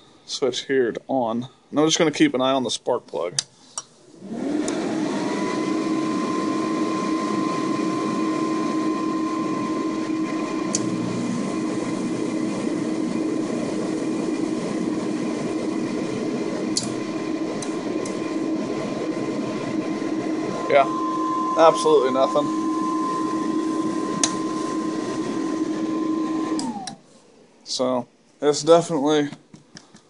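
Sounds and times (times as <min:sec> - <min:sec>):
heater motor whining: 0:04.1 - 0:27.1.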